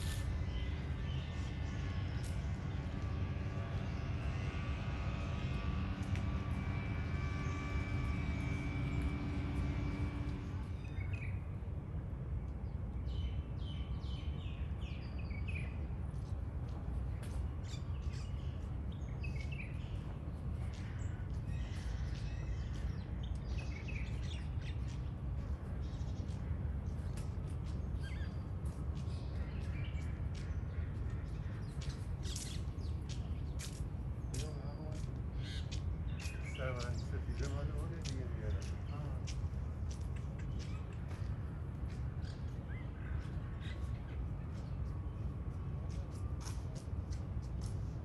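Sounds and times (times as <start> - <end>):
steady low rumble: 0.0 - 48.0
small birds chirping: 20.7 - 45.0.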